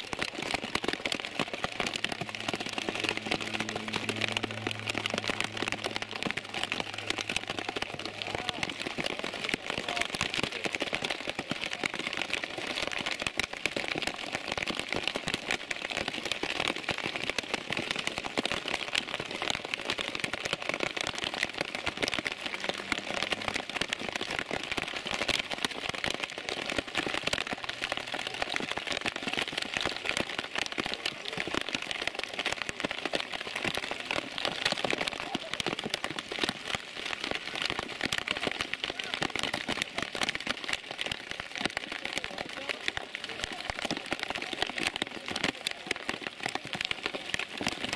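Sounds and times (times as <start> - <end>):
heavy rain falling: 0.0 - 47.9.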